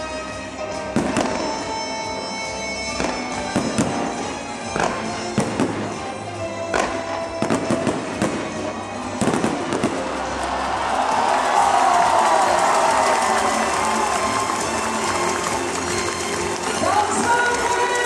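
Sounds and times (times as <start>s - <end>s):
music playing: 0.0s - 18.0s
fireworks bursting with sharp bangs: 0.8s - 10.4s.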